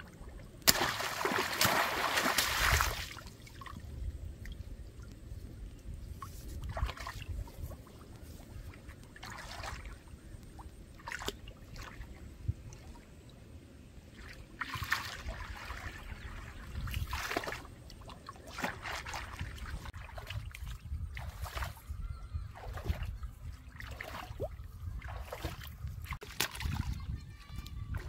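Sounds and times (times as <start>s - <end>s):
wading through muddy water: 0.0s - 28.0s.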